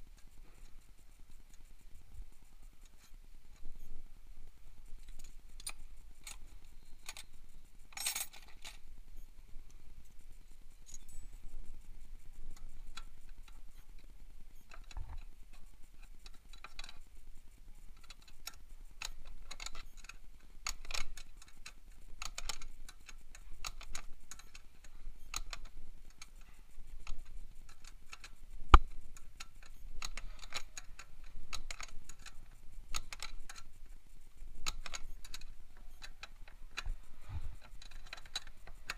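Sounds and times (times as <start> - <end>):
wrench clicking on axle nut: 17.9 - 33.7, 34.6 - 38.9.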